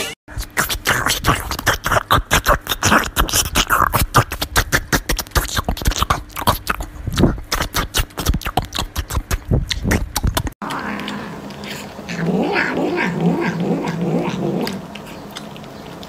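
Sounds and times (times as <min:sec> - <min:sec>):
puppy chewing and smacking: 0:00.4 - 0:16.0.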